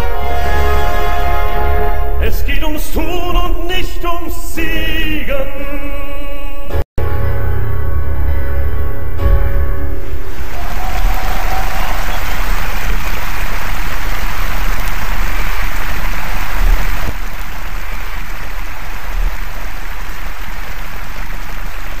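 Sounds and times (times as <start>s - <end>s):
audience applauding: 10.2s - 22.0s.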